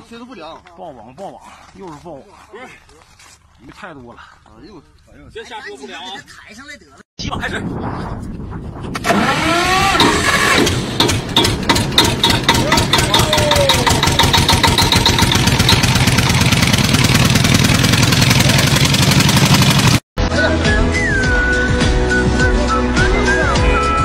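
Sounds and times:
engine running: 9.0s - 20.0s.

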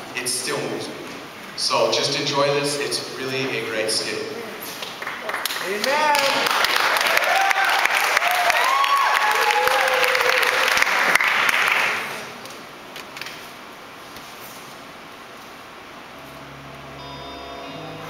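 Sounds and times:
audience applauding: 4.8s - 12.4s
whoops: 7.0s - 10.8s.

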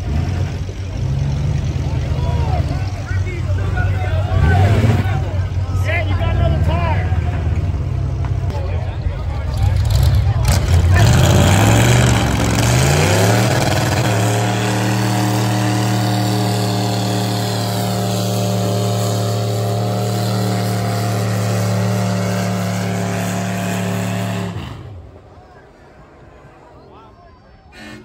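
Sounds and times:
truck engine revving: 0.0s - 25.4s
tyres spinning in burnout: 9.2s - 26.4s.

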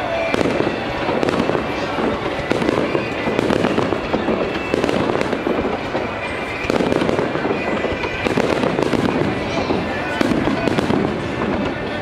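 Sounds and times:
fireworks bursting and crackling: 0.0s - 12.0s.

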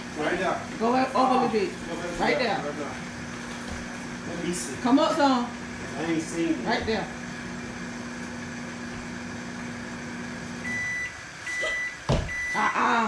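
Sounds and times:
microwave oven humming: 0.0s - 13.0s
high beeps: 10.6s - 12.6s
thump: 12.1s - 12.4s.

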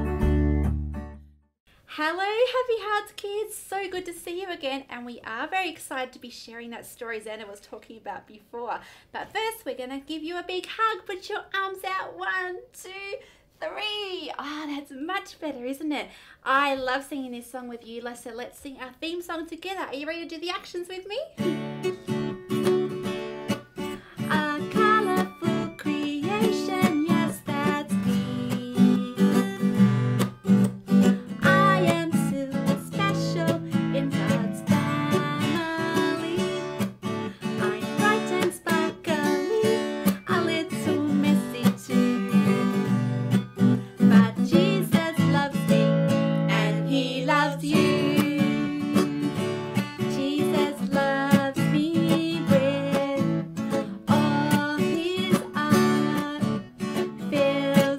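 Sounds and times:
acoustic guitar strumming: 0.0s - 1.2s, 21.4s - 57.9s
woman singing: 24.1s - 29.7s, 31.3s - 36.8s, 37.4s - 43.1s, 44.0s - 57.9s.

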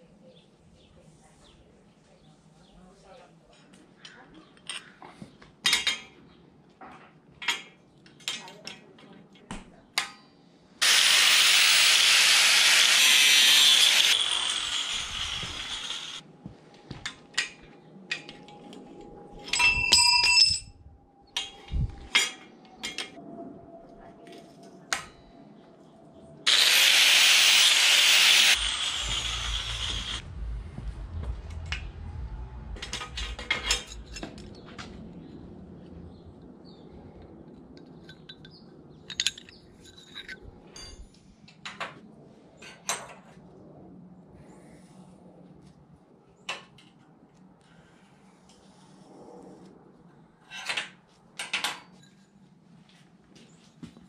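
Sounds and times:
clicks and clinks of steel plates: 5.6s - 6.2s, 7.4s - 9.1s, 19.4s - 20.7s, 32.8s - 34.5s, 38.0s - 41.8s
ringing metal clink: 19.5s - 20.8s.

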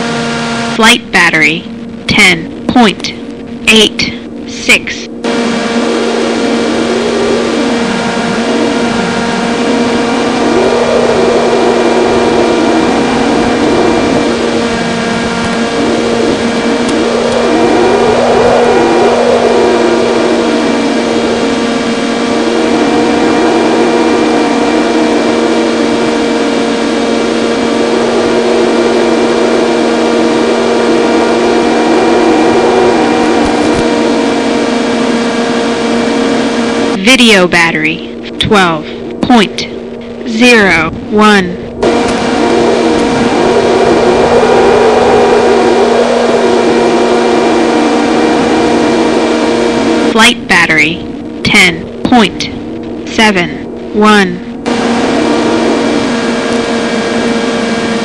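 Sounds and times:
wind rushing over microphone: 1.7s - 58.0s
model plane motor buzzing: 4.3s - 37.0s, 51.0s - 58.0s.

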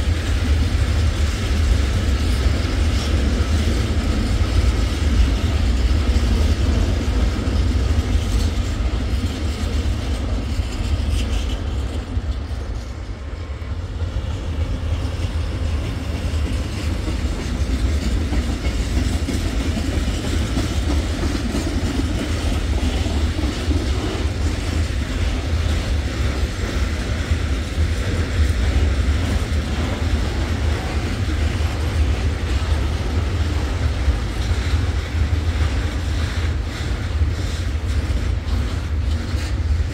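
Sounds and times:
freight trains rumbling past: 0.0s - 39.9s.

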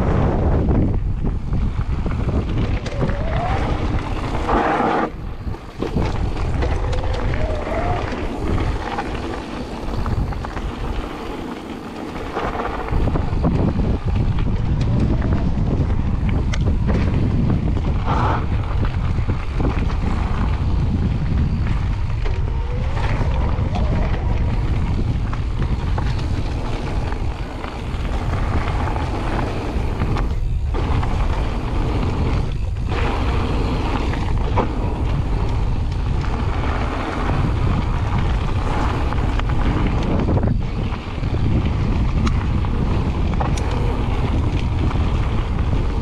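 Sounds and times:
bike tyres rolling on gravel: 0.0s - 46.0s
wind buffeting microphone: 0.0s - 46.0s.

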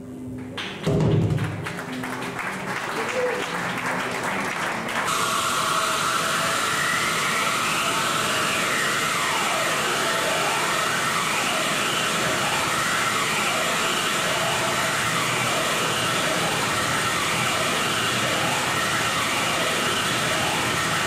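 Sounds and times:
electronic noise drone sweeping: 5.1s - 21.0s.

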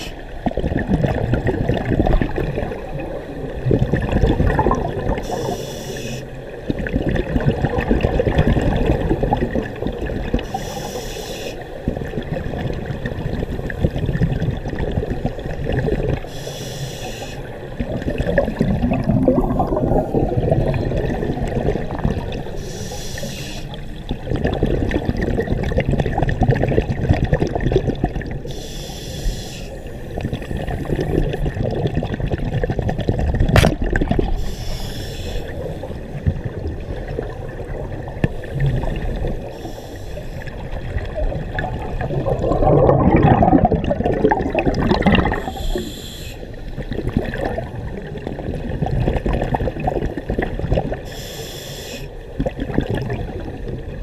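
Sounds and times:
bubbles rumbling and gurgling: 0.0s - 28.7s, 29.7s - 51.2s, 52.1s - 54.0s
regulator inhale hiss: 5.2s - 6.4s, 10.4s - 11.8s, 16.3s - 17.6s, 22.6s - 24.0s, 28.4s - 31.1s, 34.3s - 36.1s, 39.4s - 40.6s, 45.3s - 46.8s, 51.0s - 52.2s.

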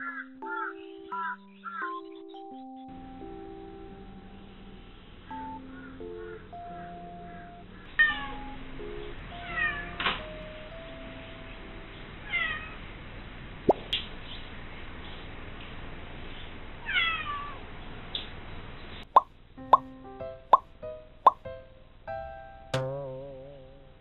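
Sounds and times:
cat meowing loudly: 12.3s - 12.8s, 16.8s - 17.6s.

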